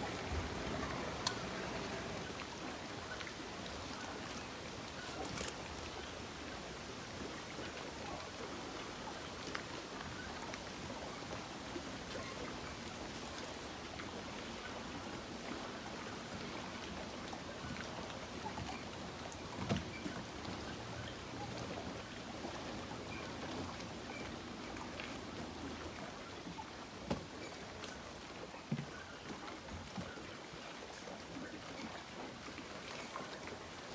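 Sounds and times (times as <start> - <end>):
outdoor ambient hiss: 0.0 - 18.4, 19.0 - 28.8, 32.4 - 33.9
light ticks: 1.2 - 1.5.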